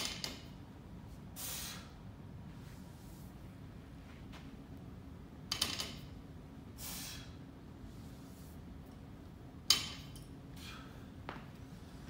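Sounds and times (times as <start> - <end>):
barbell clinking and rattling: 5.5 - 6.1, 9.7 - 10.4.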